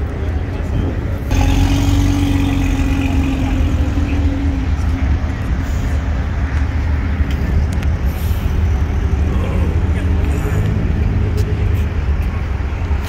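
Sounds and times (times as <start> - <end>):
car engine rumbling: 0.0 - 13.0
steady tone: 1.3 - 6.4.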